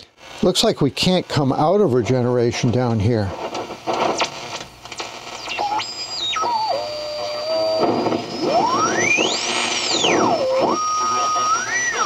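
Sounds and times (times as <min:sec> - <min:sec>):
radio receiver whistling: 0:05.2 - 0:12.0.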